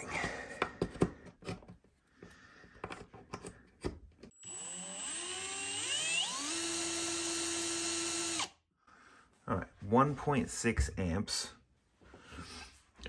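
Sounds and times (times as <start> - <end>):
cordless drill whine: 4.3 - 8.5.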